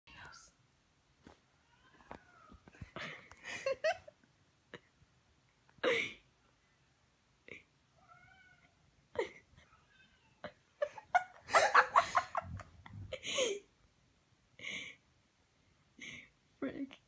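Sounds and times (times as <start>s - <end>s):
faint cat meows: 1.6s - 2.7s, 7.9s - 8.8s, 9.6s - 10.6s
person laughing in breathy bursts: 3.0s - 4.1s, 10.8s - 13.7s.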